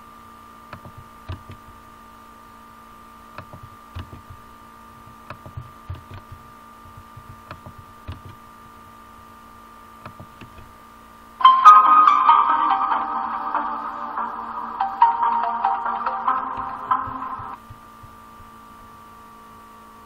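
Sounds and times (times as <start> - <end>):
electrical hum: 0.0 - 20.0
electronic notification tune: 11.4 - 17.6.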